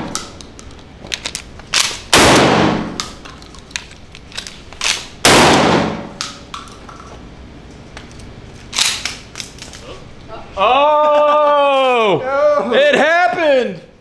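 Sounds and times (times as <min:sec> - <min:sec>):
shotgun shots echoing: 0:02.1 - 0:03.1, 0:05.2 - 0:06.2.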